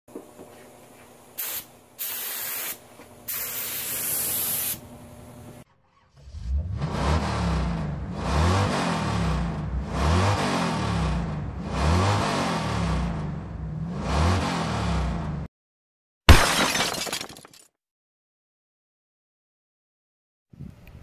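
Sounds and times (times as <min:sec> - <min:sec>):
paint spraying hiss: 0:01.4 - 0:04.8
engine revving: 0:05.7 - 0:15.5.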